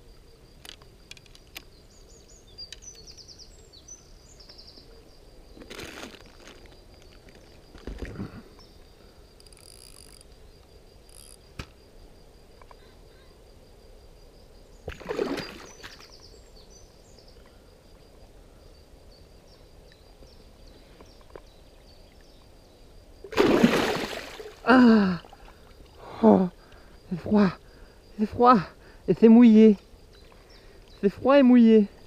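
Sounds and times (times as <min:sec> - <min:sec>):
water splashing: 0:14.9 - 0:16.0, 0:23.3 - 0:24.7.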